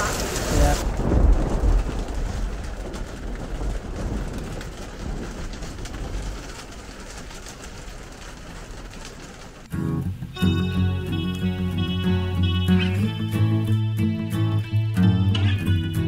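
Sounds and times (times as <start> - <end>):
low thunder rumble: 0.0 - 10.3
heavy rain drumming on roof: 0.0 - 16.0.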